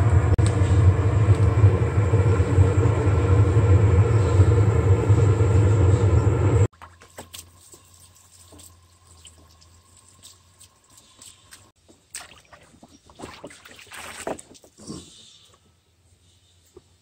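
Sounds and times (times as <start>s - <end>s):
water trickling in a basin: 6.8s - 14.7s.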